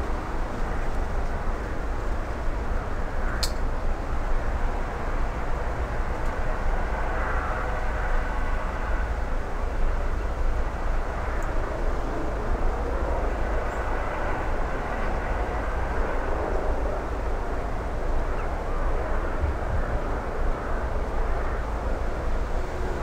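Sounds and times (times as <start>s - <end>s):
helicopter hovering: 11.6s - 23.0s.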